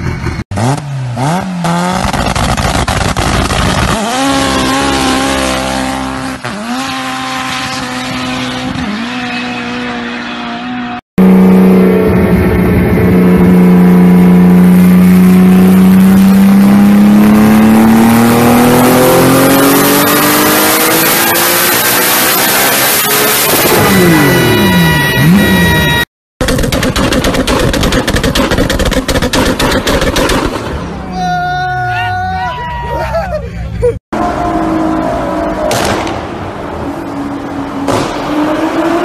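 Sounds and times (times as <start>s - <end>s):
car engine accelerating with upshifts: 0.0s - 25.8s.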